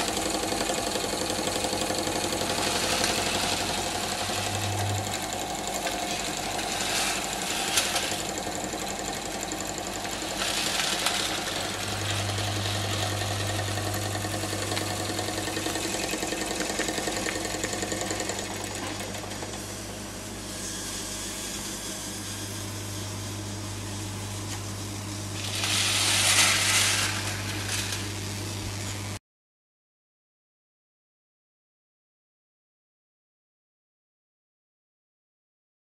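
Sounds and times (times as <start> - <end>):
toy steam engine running: 0.0 - 23.0, 25.4 - 28.3
steam hissing: 25.3 - 28.5.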